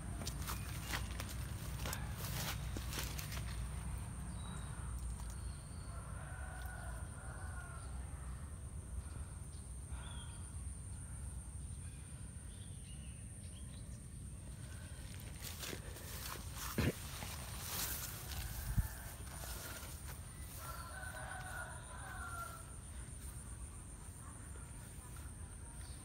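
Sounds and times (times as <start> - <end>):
rooster crowing: 5.8 - 8.1, 17.7 - 22.9.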